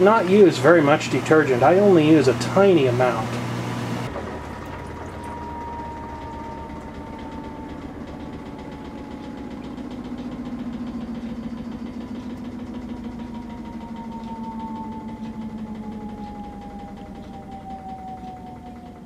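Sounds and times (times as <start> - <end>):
washing machine drain pump humming: 0.0 - 19.0
water draining into sink: 4.1 - 7.4.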